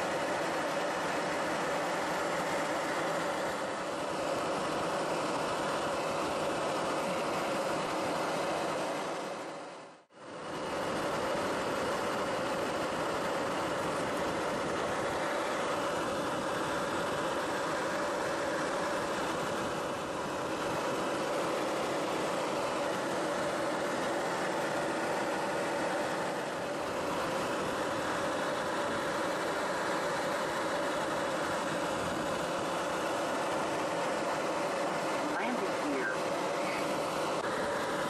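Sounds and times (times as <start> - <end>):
aircraft engine drone in cabin: 0.0 - 38.0.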